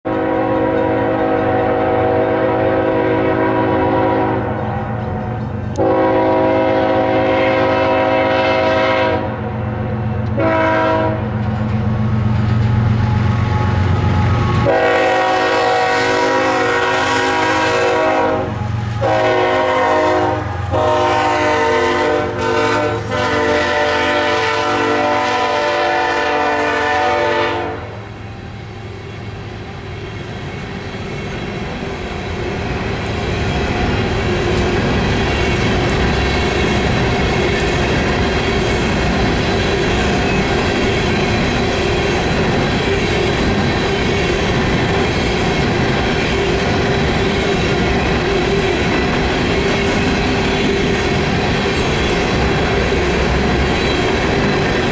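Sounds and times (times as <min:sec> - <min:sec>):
locomotive air horn blasts: 0:00.1 - 0:09.4, 0:10.4 - 0:11.3, 0:13.4 - 0:28.1.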